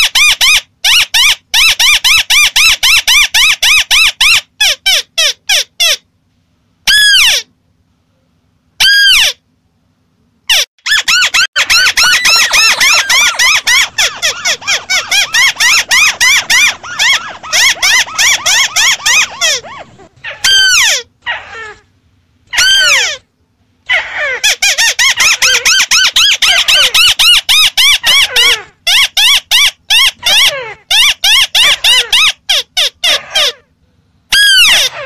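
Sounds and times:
bird chattering calls: 10.9s - 21.1s.

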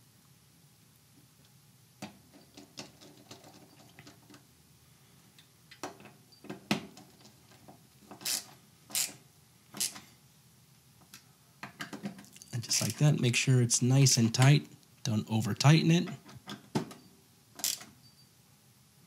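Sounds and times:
screwdriver metallic clicks and scrapes: 8.1s - 9.2s, 9.8s - 10.0s, 17.6s - 17.9s.

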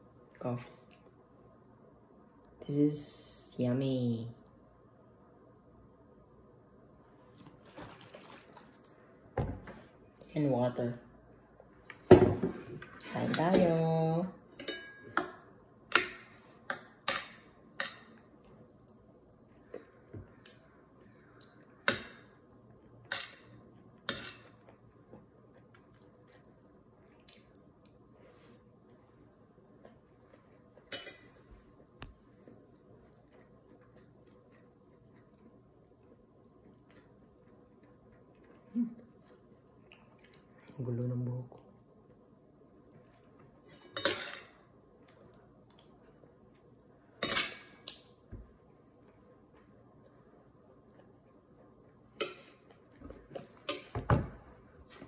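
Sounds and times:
cutlery clinking on a plate: 43.8s - 44.5s.

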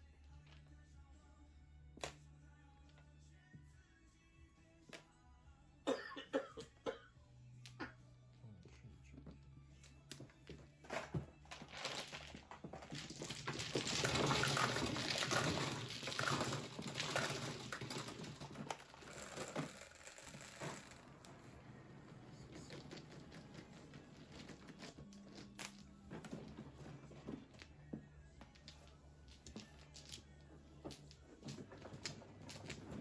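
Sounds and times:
low hum of shuffling table: 10.2s - 33.0s
plastic mahjong tiles clattering: 10.9s - 21.1s, 28.5s - 33.0s.

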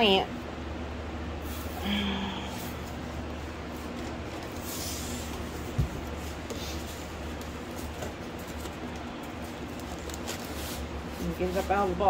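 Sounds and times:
steady low hum: 0.0s - 12.0s
cardboard rustling: 3.6s - 12.0s.

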